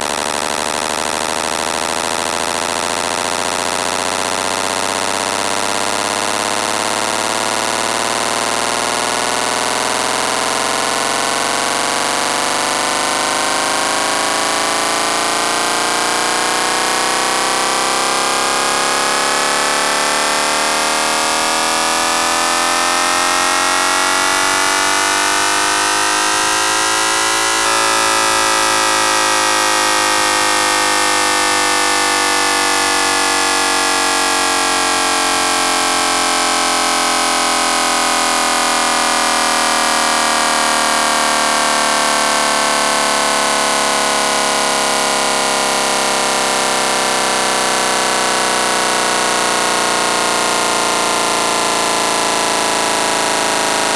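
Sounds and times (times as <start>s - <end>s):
synthesized engine revving: 0.0s - 53.9s.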